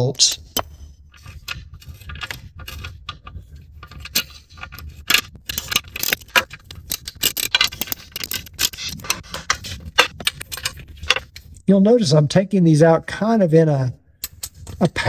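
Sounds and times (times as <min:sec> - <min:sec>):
hand ratchet clicking: 0:00.6 - 0:11.3.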